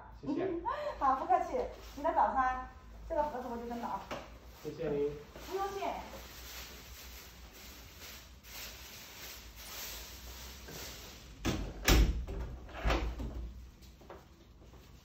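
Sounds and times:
door closing with a thud: 0:11.4 - 0:13.5.

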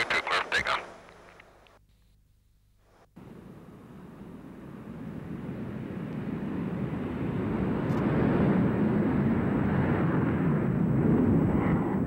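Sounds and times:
jet engines roaring: 0:03.2 - 0:12.0.

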